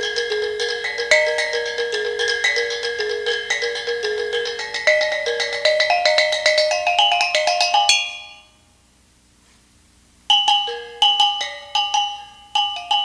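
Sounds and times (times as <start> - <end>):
gongs struck with sticks: 0.0 - 8.4.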